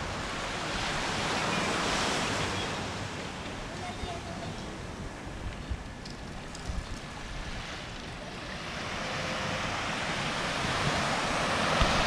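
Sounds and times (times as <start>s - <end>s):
small waves breaking on a beach: 0.0s - 12.0s
wind on the microphone: 0.0s - 12.0s
rushing noise: 8.4s - 12.0s.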